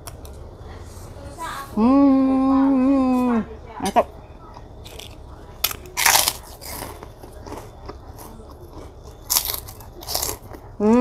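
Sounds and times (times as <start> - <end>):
crunching bites into crackers: 4.8 - 11.0.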